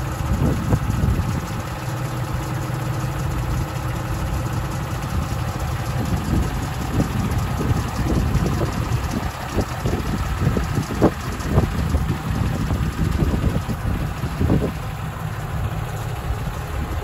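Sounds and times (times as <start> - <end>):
truck engine idling: 0.0 - 17.0.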